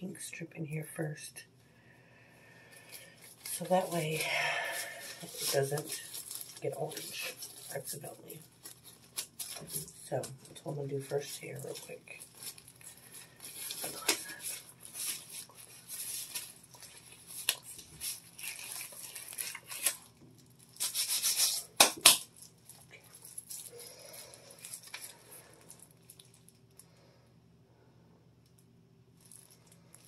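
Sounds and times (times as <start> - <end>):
gloves rustling and rubbing: 2.6 - 26.6.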